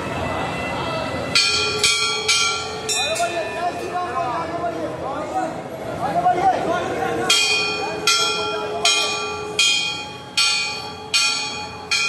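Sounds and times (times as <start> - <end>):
temple bell ringing: 0.0 - 4.8, 7.2 - 12.0
crowd murmuring: 0.0 - 11.2.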